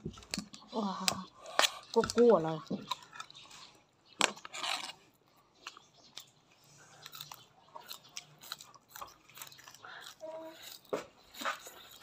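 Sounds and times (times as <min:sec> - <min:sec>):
person chewing food: 0:00.0 - 0:12.0.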